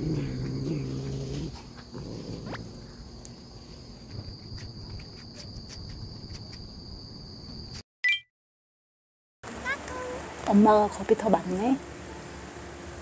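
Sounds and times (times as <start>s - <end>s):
cat growling low: 0.0s - 2.9s.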